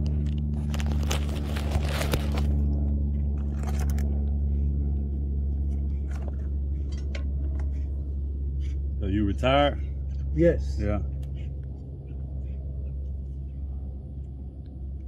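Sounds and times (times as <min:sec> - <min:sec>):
crunching and scraping handling: 0:00.0 - 0:04.3
air-conditioning unit humming: 0:00.0 - 0:15.0.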